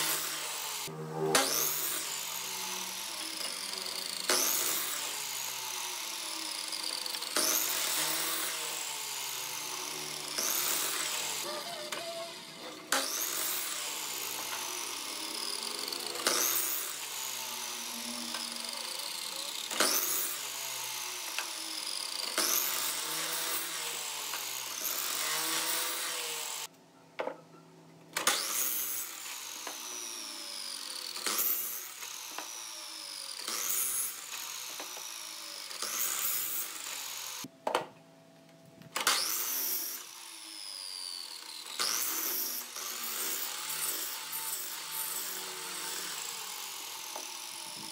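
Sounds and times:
miter saw cutting wood: 0.0 - 26.7, 28.2 - 37.5, 39.0 - 47.9
saw motor winding down: 0.0 - 26.7, 28.2 - 37.5, 39.0 - 47.9
faint background music: 26.7 - 28.2.

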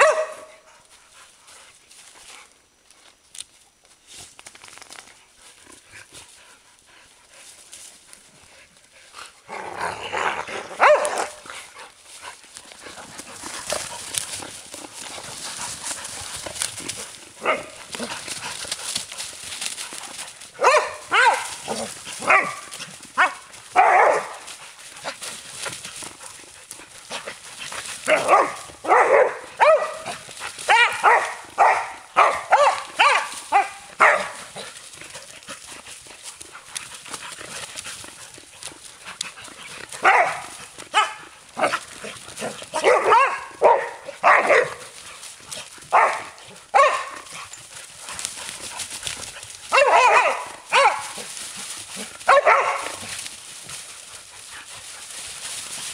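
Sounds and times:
dogs barking: 0.0 - 0.7, 10.6 - 11.6, 17.4 - 18.4, 20.5 - 25.2, 28.0 - 34.7, 39.9 - 47.6, 49.6 - 53.2.

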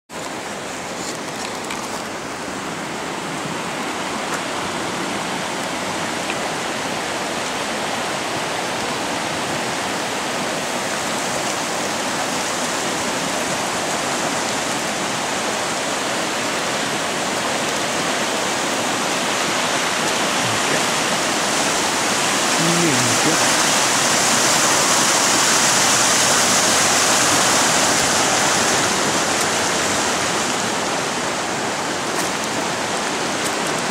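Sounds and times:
river rushing: 0.1 - 33.9.

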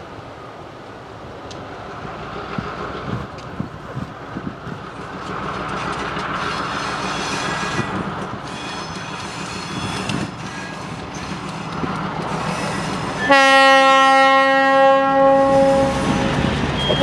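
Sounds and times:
diesel locomotive drone: 0.0 - 17.0
wheels clicking over rail joints: 1.3 - 13.4
wheels squealing on curve: 5.8 - 11.6, 12.3 - 13.3, 15.7 - 17.0.

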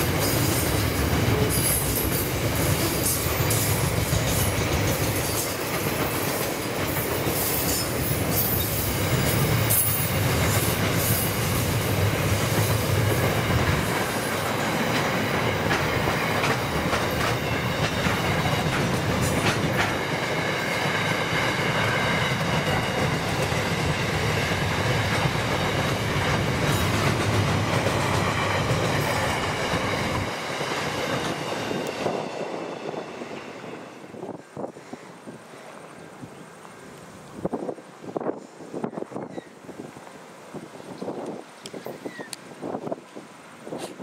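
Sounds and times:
freight train wheels clacking: 0.0 - 34.4.

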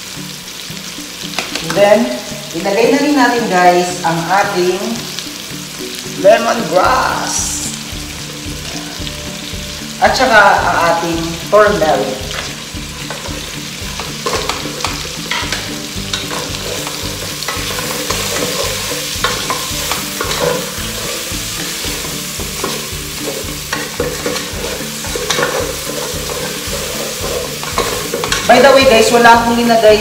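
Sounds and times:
chicken sizzling hiss: 2.0 - 29.4
wooden spatula scraping pot: 21.9 - 28.6.

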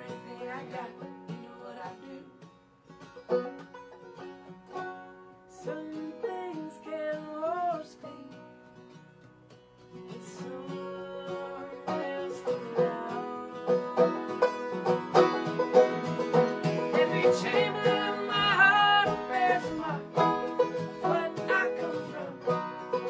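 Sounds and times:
woman singing: 0.0 - 2.4, 5.5 - 8.5, 10.1 - 14.5, 16.9 - 22.6
acoustic guitar: 0.0 - 23.0
banjo: 0.0 - 23.0.

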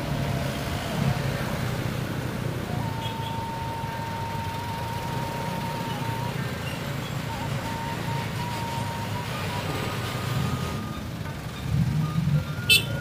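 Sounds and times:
wind and road noise: 0.0 - 13.0
thin steady high tone: 2.7 - 9.2.

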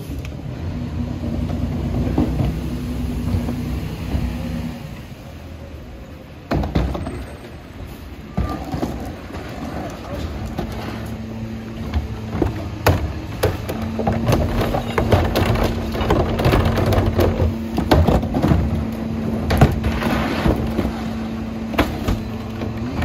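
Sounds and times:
diesel engine rumbling: 0.0 - 23.0
hydraulics humming: 0.0 - 23.0
rubbish clattering into hopper: 6.5 - 23.0.

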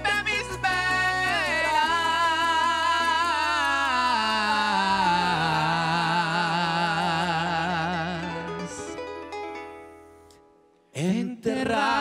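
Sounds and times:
male voices singing in harmony: 0.0 - 8.9, 11.0 - 12.0
band with harps: 7.8 - 10.6.

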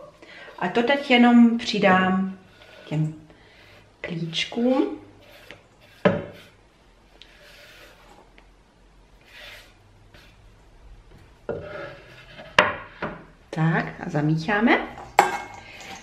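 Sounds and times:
hand rubbing and scraping food: 0.6 - 6.6, 7.2 - 8.4, 9.2 - 10.6.

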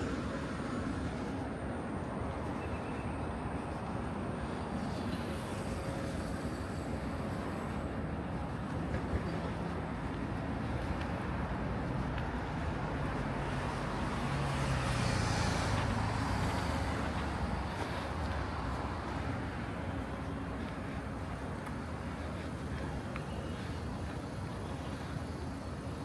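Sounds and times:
steady traffic noise: 0.0 - 26.0
vehicle passing: 9.6 - 21.4.

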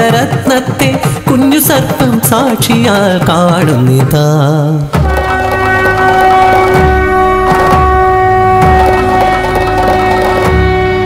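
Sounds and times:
sustained instrumental tone: 5.0 - 11.0.

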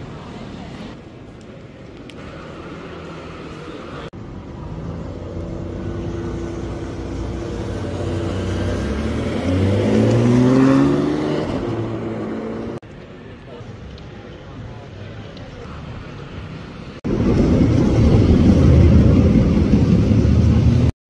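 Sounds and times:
street noise: 0.0 - 20.9
sports car engine accelerating: 5.2 - 12.8.

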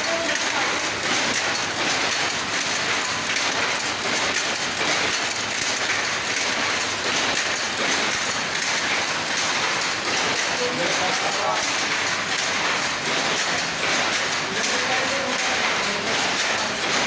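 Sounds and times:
loom machinery clattering: 0.0 - 17.0.

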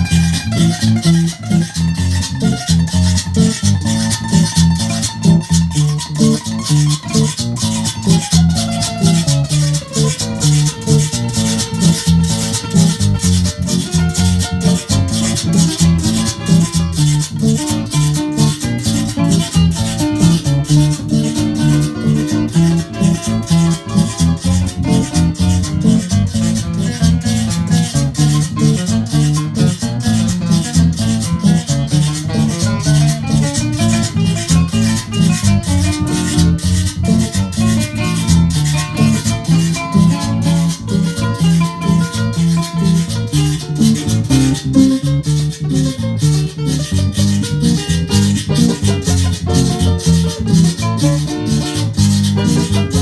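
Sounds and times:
electric guitar: 0.0 - 53.0
metal shaker beat: 0.0 - 53.0
nylon-string acoustic guitar melody: 0.0 - 53.0.

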